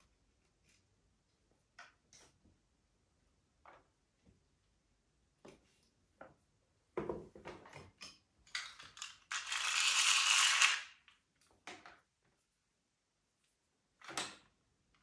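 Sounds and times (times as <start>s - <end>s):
whirring ratchety mechanical noise: 9.3s - 10.9s.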